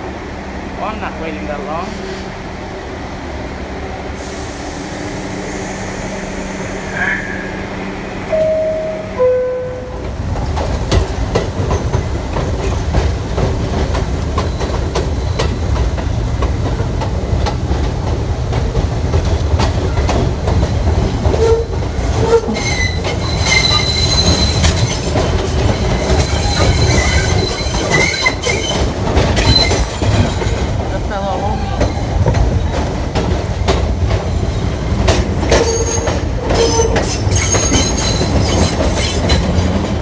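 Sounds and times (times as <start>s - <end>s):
train low rumble: 0.0s - 40.0s
two-tone door chime: 8.3s - 10.0s
wheels squealing: 21.4s - 30.6s.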